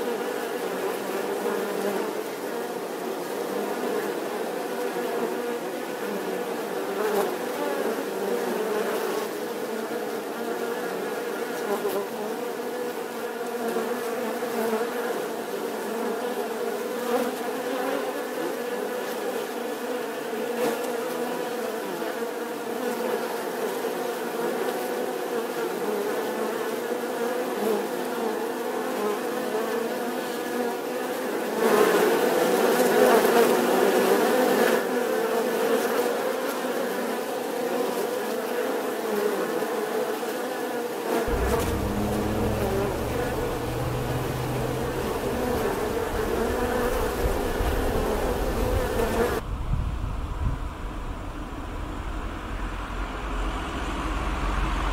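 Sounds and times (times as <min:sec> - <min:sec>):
bees buzzing: 0:41.3 - 0:49.4.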